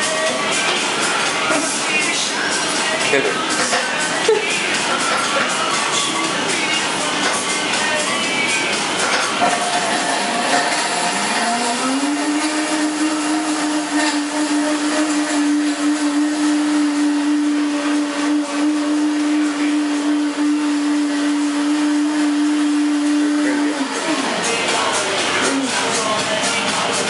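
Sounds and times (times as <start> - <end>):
small electric motor humming: 9.5 - 24.4.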